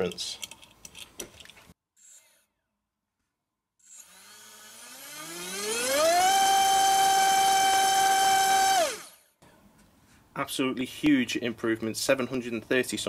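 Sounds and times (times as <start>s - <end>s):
electric motor propeller whine: 3.8s - 9.2s.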